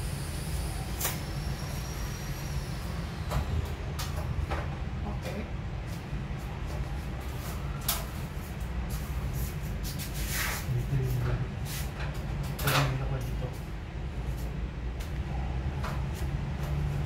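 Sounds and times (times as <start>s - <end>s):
faint high whine: 0.0s - 5.5s
steady low rumble: 0.0s - 17.0s.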